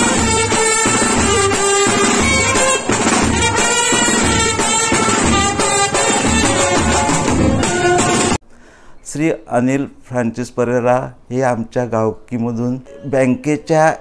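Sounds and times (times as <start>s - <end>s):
brass band playing melody: 0.0s - 8.4s
steady drum beat: 0.0s - 8.4s.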